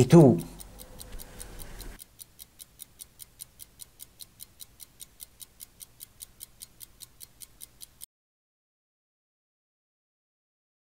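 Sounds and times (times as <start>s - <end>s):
fast clock-like ticking: 0.0s - 8.1s.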